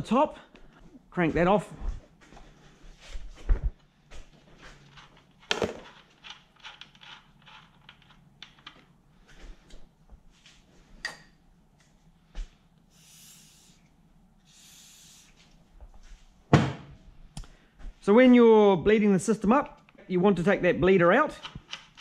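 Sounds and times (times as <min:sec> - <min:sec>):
hard items clicking and knocking: 0:04.7 - 0:09.0, 0:21.3 - 0:22.0
aerosol spray can hissing: 0:12.9 - 0:13.8, 0:14.5 - 0:15.4.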